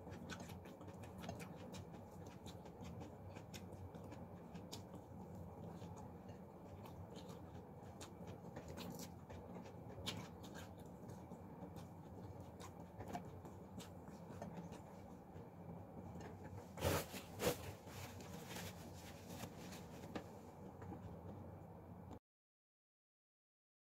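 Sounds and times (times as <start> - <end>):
chewing clicks: 0.0 - 14.9
fingers picking at food: 0.0 - 20.2
low room hum: 0.0 - 22.2.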